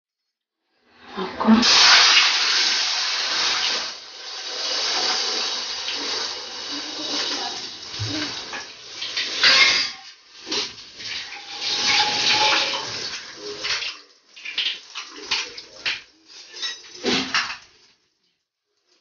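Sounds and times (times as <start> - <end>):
eggs sizzling in a pan: 1.6 - 13.6.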